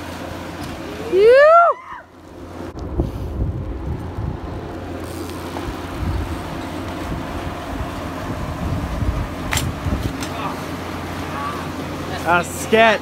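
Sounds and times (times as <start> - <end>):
bike tyres rolling on asphalt: 0.0 - 13.0
wind rumbling on microphone: 2.6 - 10.3.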